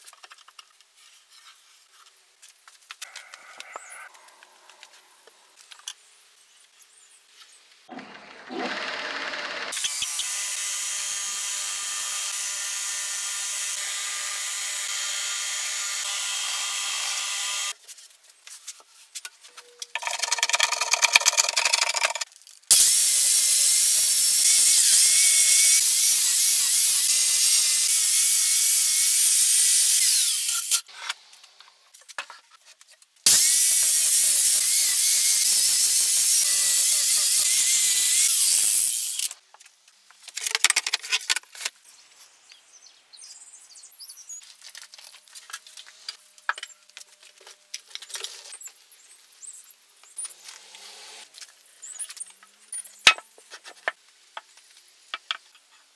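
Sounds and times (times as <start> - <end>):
power tool whining against wood: 7.9 - 17.7.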